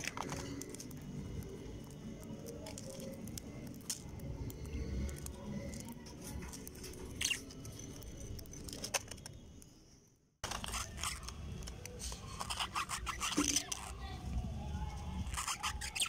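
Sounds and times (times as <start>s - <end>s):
scratchy clicks and scrapes: 0.0s - 9.6s, 10.4s - 14.1s, 15.2s - 16.0s
lovebirds chirping and chattering: 4.4s - 8.7s, 10.5s - 14.1s, 15.2s - 16.0s.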